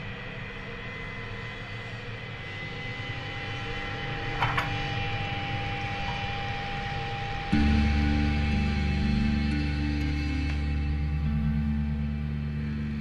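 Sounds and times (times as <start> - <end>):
low droning rumble: 5.1 - 13.0.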